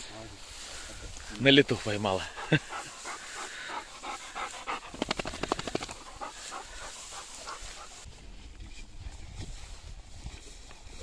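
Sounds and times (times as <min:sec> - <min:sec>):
dog panting: 0:02.0 - 0:08.1.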